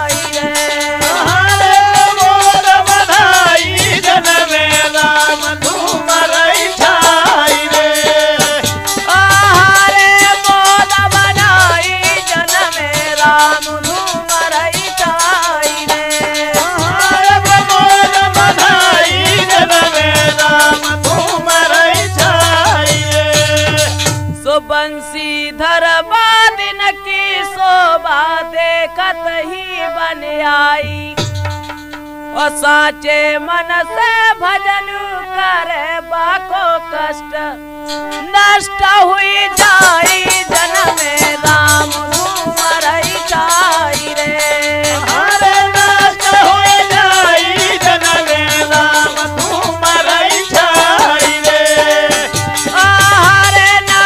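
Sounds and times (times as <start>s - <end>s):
rattling jingling percussion: 0.0s - 24.4s, 39.6s - 54.0s
dholak drum beats: 0.0s - 25.5s, 28.6s - 34.8s, 37.8s - 54.0s
person singing: 0.0s - 31.4s, 32.3s - 54.0s
folk song music: 0.0s - 54.0s.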